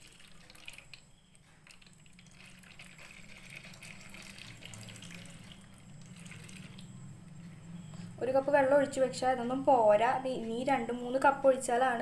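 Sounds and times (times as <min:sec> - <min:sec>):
water trickling into reservoir: 0:00.0 - 0:07.4.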